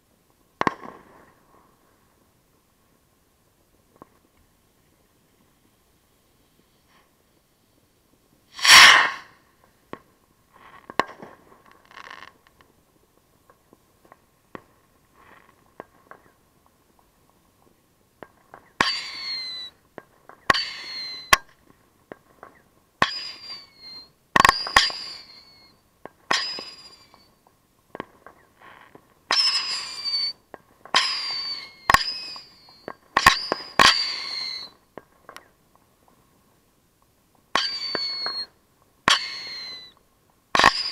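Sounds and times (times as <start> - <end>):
small firework pops: 0.6 - 1.6, 8.5 - 36.2, 37.0 - 40.9
firework bursts with falling whistles: 8.5 - 9.5, 18.5 - 21.6, 22.4 - 27.4, 28.1 - 35.6, 37.5 - 40.0, 40.6 - 40.9
loud firework bang: 8.6 - 9.4
sharp cracks: 8.6 - 10.1, 18.2 - 25.4, 27.9 - 35.6, 39.1 - 40.9.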